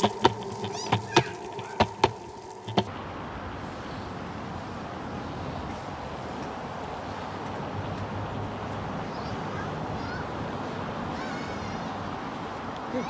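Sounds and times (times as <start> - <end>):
outdoor rushing noise: 0.0 - 11.2.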